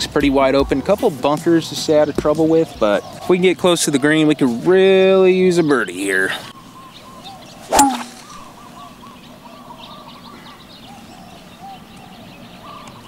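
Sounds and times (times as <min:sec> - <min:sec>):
faint bird calls: 0:05.9 - 0:13.0
golf club striking ball: 0:07.7 - 0:08.5.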